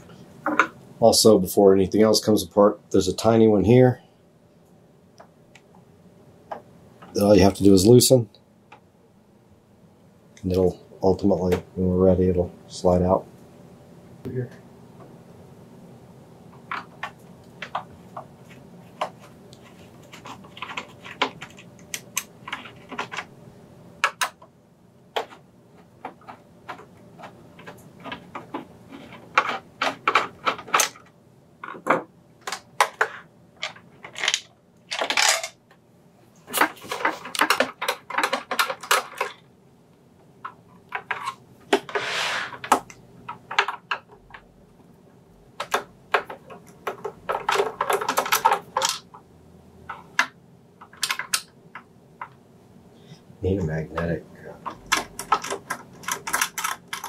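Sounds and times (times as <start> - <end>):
plastic housing being pried apart: 45.6 - 49.1, 54.6 - 57.0.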